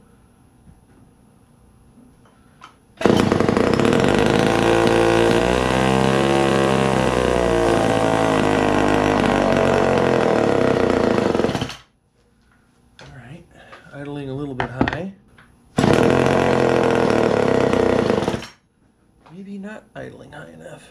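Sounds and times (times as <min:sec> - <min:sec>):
two-stroke chainsaw running: 0:03.0 - 0:11.8, 0:15.8 - 0:18.5.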